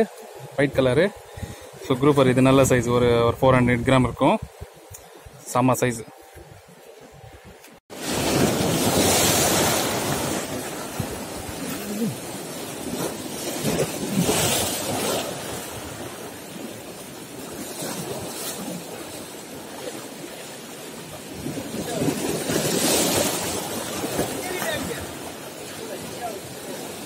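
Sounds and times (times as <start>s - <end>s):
waves breaking over rocks: 7.9s - 27.0s.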